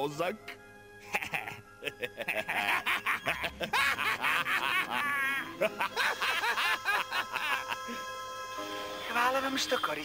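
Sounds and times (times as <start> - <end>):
cartoon voices laughing: 1.1 - 8.1.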